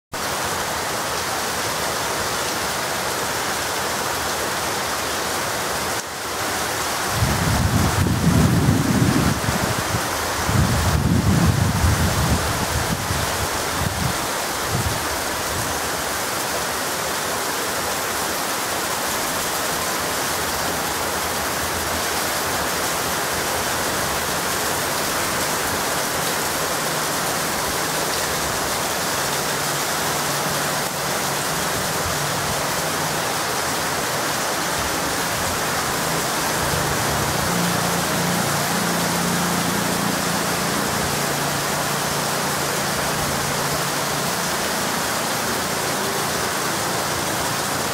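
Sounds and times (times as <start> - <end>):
heavy rain pouring: 0.1 - 47.9
wind buffeting microphone: 7.1 - 15.7.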